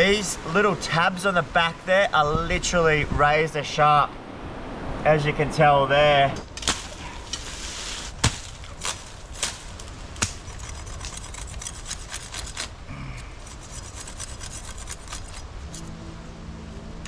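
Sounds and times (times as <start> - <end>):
knife sawing through stalk: 7.4 - 12.8, 13.4 - 15.9
low music: 15.6 - 17.0.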